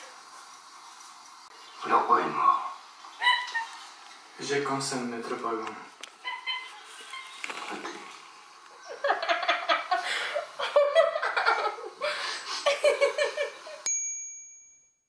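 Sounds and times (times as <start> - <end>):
woman laughing: 8.8 - 13.8.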